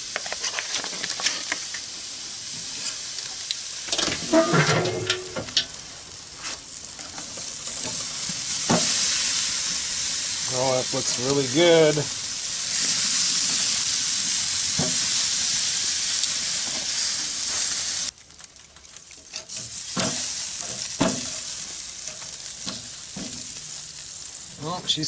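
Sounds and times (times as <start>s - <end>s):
meat sizzling on grill: 0.0s - 25.0s
clicks and knocks on grate: 3.9s - 5.8s.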